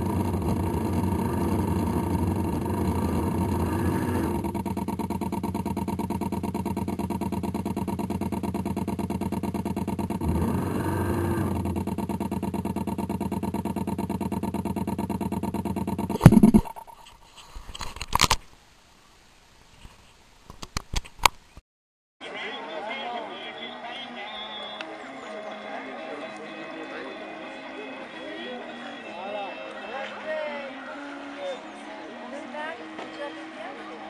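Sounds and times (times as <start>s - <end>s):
model boat engine running: 0.0s - 16.6s.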